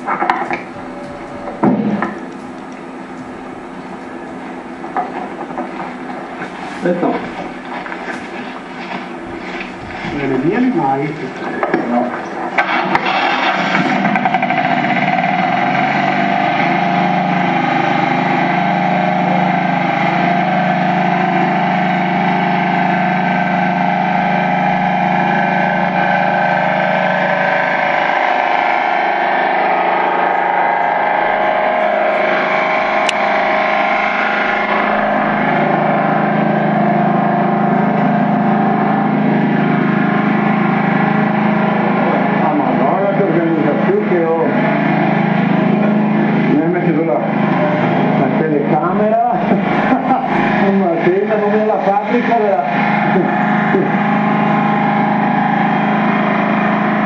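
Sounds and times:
small engine running at high speed: 12.6s - 57.0s.

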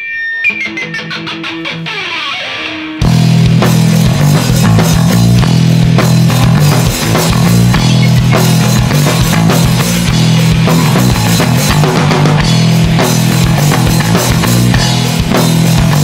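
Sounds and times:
electric guitar playing alone: 0.0s - 16.0s
live rock band playing: 0.0s - 16.0s
drums crashing: 2.8s - 16.0s.

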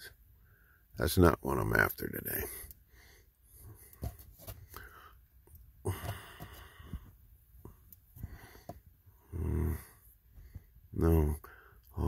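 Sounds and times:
man sighing: 5.8s - 6.8s.

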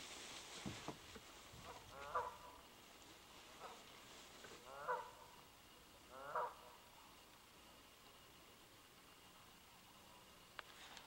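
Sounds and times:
geese honking: 1.6s - 2.7s, 3.5s - 3.9s, 4.6s - 5.4s, 6.1s - 6.8s.

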